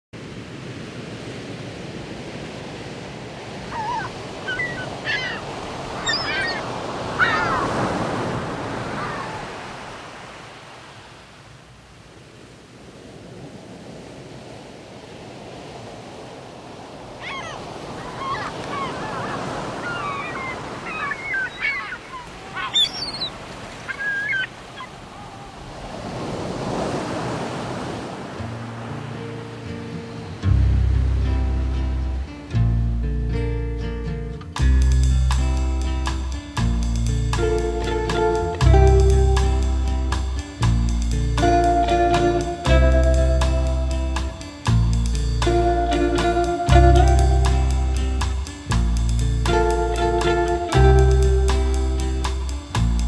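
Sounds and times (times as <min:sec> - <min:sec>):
waves breaking: 0:00.2 - 0:53.0
birds calling: 0:03.6 - 0:08.2, 0:17.2 - 0:25.6.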